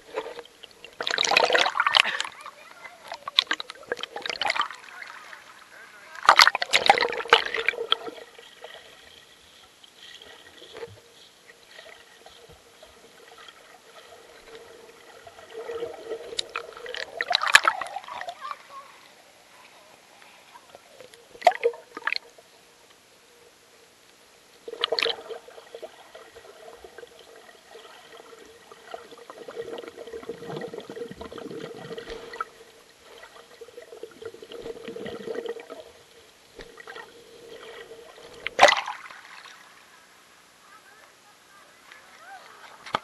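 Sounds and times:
creek water gurgling: 0.0 - 22.4, 24.6 - 40.5
sharp water splashes: 0.9 - 8.9, 15.3 - 18.6, 21.4 - 22.3, 24.7 - 32.5, 36.6 - 39.8.

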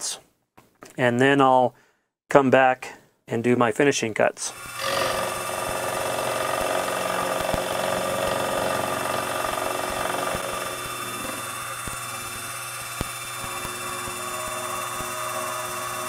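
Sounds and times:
end mill cutting metal: 4.5 - 16.0
milling machine motor whine: 4.5 - 16.0.

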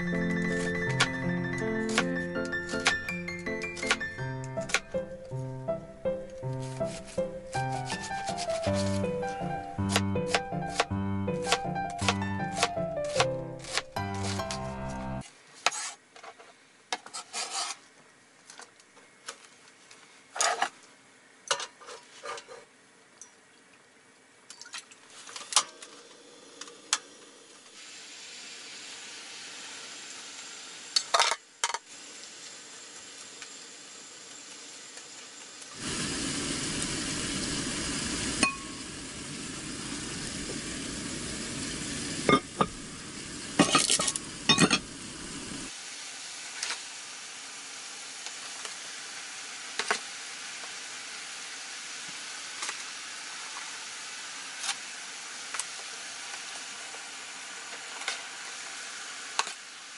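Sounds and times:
onions sizzling in hot oil: 27.1 - 31.2, 31.9 - 59.9.

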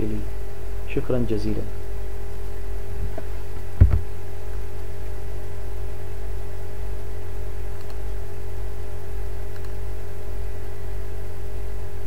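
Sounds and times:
low hum with hiss: 0.0 - 12.0
faint clicks: 7.8 - 8.0.

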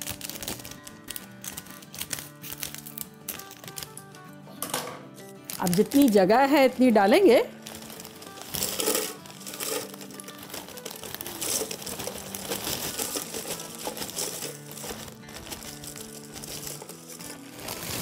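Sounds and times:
chip bag crinkling: 0.0 - 4.1, 5.2 - 6.5, 7.5 - 18.0
chips clattering into plastic jar: 4.6 - 6.2, 7.6 - 18.0.

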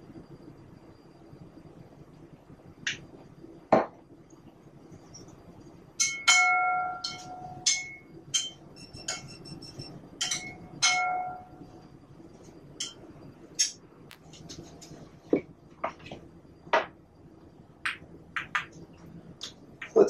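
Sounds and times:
bowl ringing: 6.0 - 9.3, 10.2 - 11.7.

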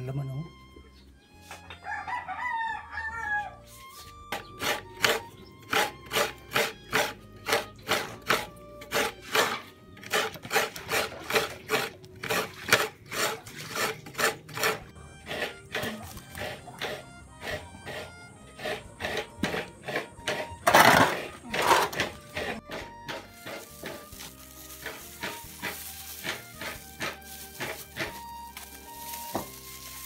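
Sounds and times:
rooster crowing: 1.8 - 3.7
coconut grater rasping: 4.3 - 30.0.

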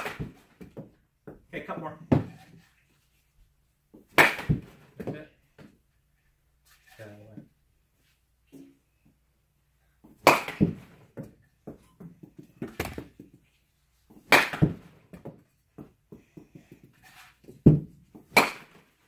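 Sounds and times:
bat cracking against baseball: 0.0 - 0.7, 4.1 - 5.1, 10.2 - 11.0, 14.1 - 15.3, 17.7 - 19.0.

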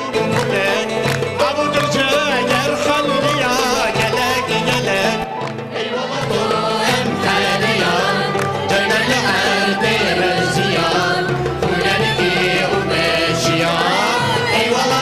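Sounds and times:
violin: 0.0 - 15.0
women's choir singing: 4.9 - 15.0.

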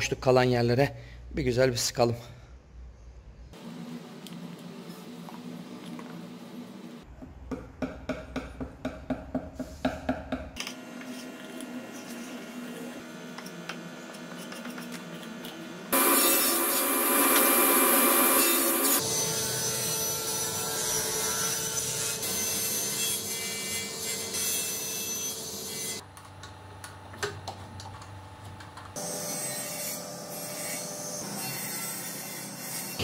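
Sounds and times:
table saw cutting wood: 15.9 - 26.0, 29.0 - 33.0.

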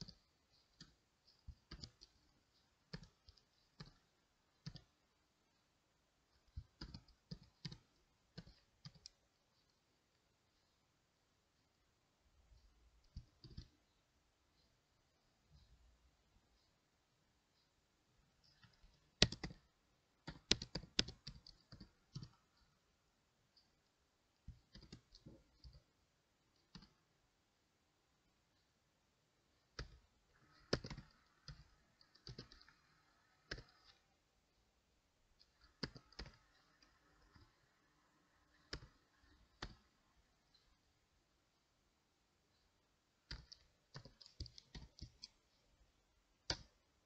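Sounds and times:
keyboard typing: 0.0 - 10.3, 12.6 - 14.8, 17.6 - 22.9, 23.5 - 27.2, 29.5 - 34.3, 35.3 - 40.9, 43.1 - 45.7, 46.4 - 47.0.

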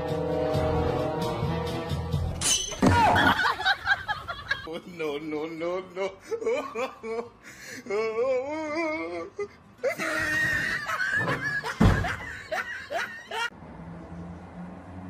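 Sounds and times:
people laughing and shrieking: 2.7 - 4.7, 9.8 - 13.5
wardrobe door falling thud: 11.2 - 12.2.

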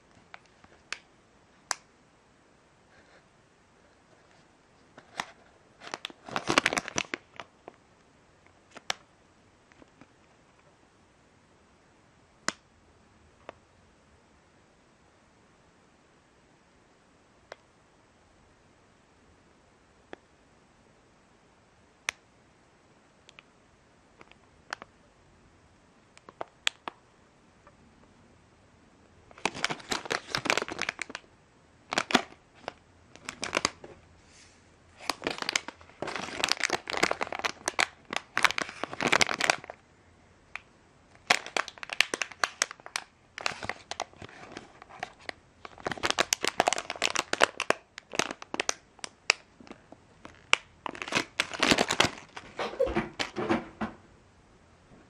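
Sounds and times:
plastic bag crinkling: 5.0 - 7.5, 29.3 - 31.2, 31.9 - 33.9, 35.0 - 39.8, 41.2 - 53.4.

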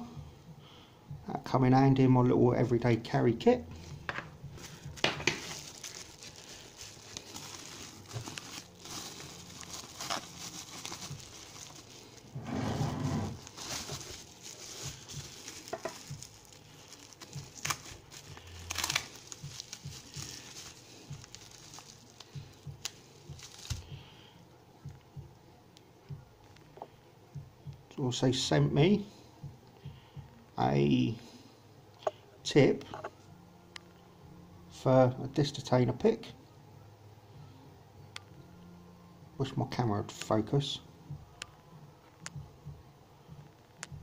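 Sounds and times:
bubble wrap crinkling: 3.8 - 23.9.

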